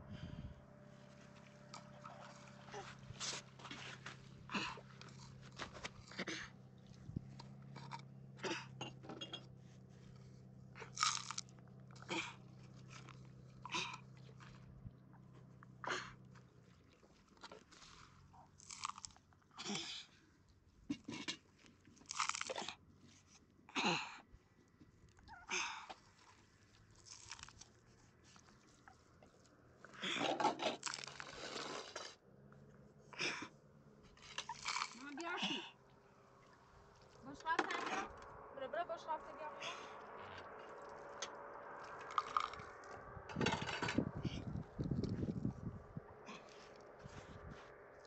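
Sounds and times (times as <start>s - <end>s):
low hum: 0.0s - 19.5s, 35.7s - 48.0s
irregular crunching: 9.9s - 14.7s, 16.2s - 19.4s, 21.1s - 23.4s, 26.0s - 32.2s, 34.0s - 35.2s, 40.0s - 43.0s.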